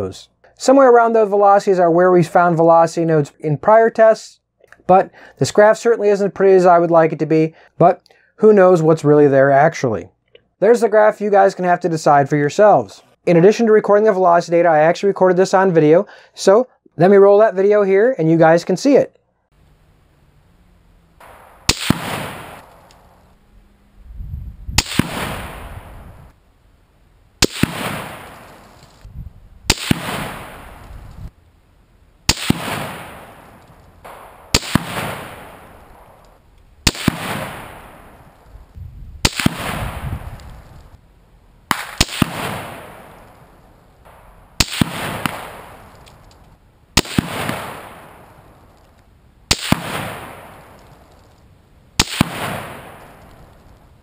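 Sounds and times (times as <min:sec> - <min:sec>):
rifle shots with echo: 0:21.2 - 0:23.4, 0:24.8 - 0:26.3, 0:27.4 - 0:29.1, 0:29.7 - 0:31.1, 0:32.3 - 0:38.5, 0:39.2 - 0:40.7, 0:41.7 - 0:46.4, 0:47.0 - 0:48.8, 0:49.5 - 0:51.3, 0:52.0 - 0:53.8.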